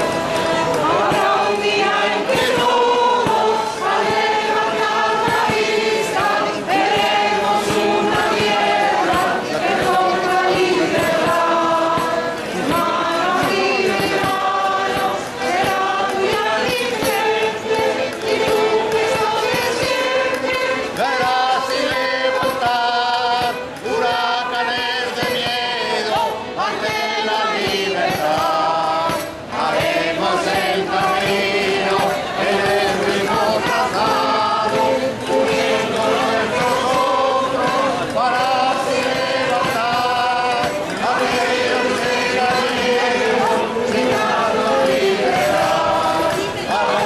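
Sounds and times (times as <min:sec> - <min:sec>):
mixed choir singing: 0:00.0 - 0:47.0.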